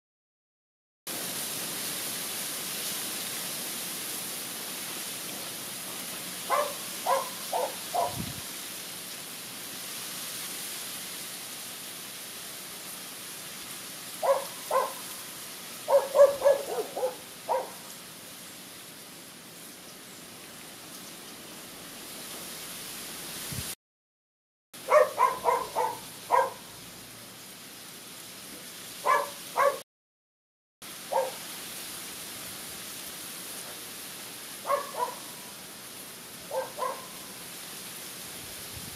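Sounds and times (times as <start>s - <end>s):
outdoor background hiss: 1.1s - 23.8s, 24.8s - 29.8s, 30.8s - 38.9s
dog barking: 6.5s - 8.2s, 14.2s - 15.2s, 15.9s - 17.9s, 24.8s - 26.7s, 29.0s - 29.8s, 31.1s - 31.4s, 34.6s - 35.5s, 36.5s - 37.3s.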